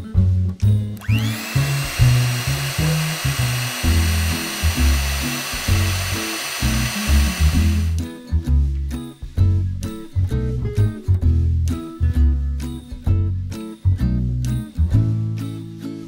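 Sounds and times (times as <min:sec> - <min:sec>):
background music: 0:00.0 - 0:16.0
mixer grinder motor whining: 0:01.0 - 0:08.0.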